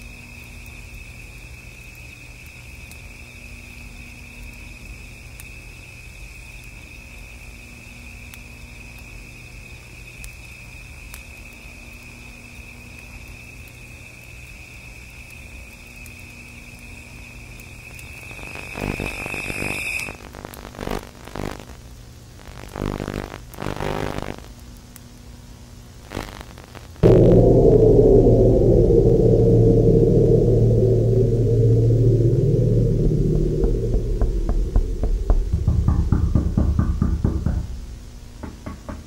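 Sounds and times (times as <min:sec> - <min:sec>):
crickets trilling: 0:00.0 - 0:20.4
distorted tape glitch noise: 0:20.3 - 0:21.7, 0:22.4 - 0:24.5, 0:26.0 - 0:27.2
low hum: 0:27.0 - 0:38.4.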